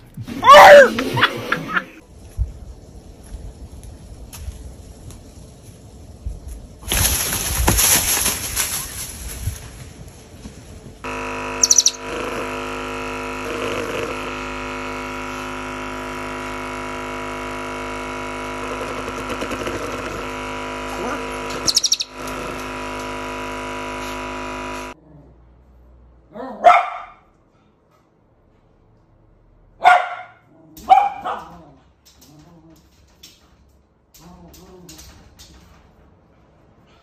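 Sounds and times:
massage gun motor hum: 11.0s - 25.0s
shrill chirps: 11.6s - 12.1s, 21.6s - 22.2s
dog barking: 26.3s - 27.3s, 29.8s - 31.8s.

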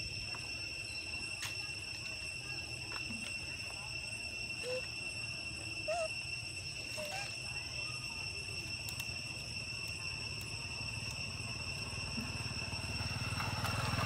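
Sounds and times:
high-pitched insect drone: 0.0s - 14.0s.

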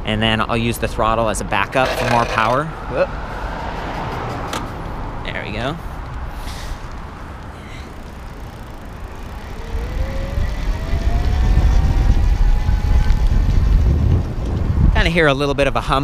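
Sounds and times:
electric bike motor whine: 7.9s - 14.6s
wind rumble on microphone: 8.7s - 16.0s.

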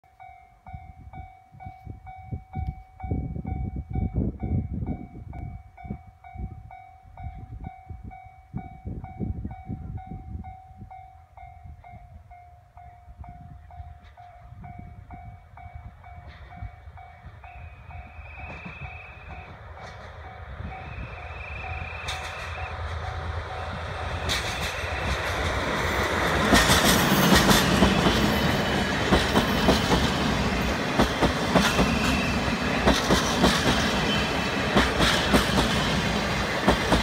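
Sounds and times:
level-crossing alarm dinging: 5.6s - 26.5s.

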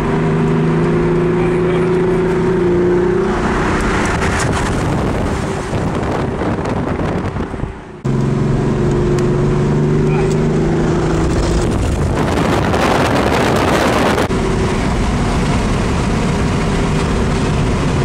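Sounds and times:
car engine droning: 0.0s - 18.0s
road noise: 0.0s - 18.0s
wind noise: 2.0s - 8.0s, 9.2s - 18.0s.

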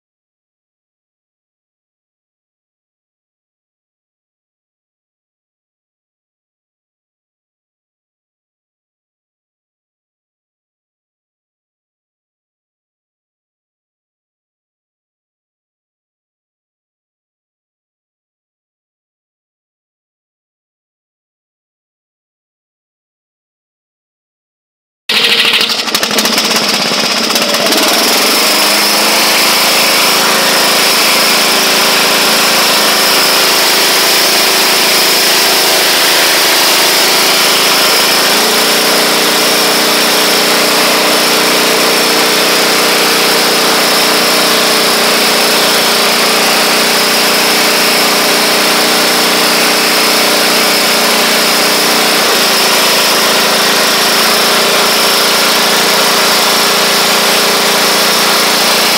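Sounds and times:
lawn tractor engine running: 25.1s - 58.9s.

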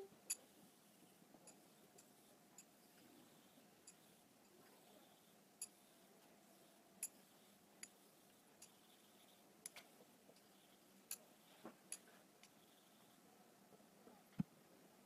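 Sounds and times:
razor clicking on whetstone: 1.5s - 12.9s.

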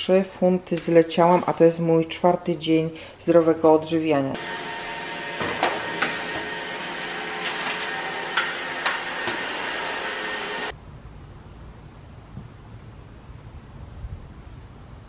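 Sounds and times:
small motor humming with whine: 4.4s - 10.7s.

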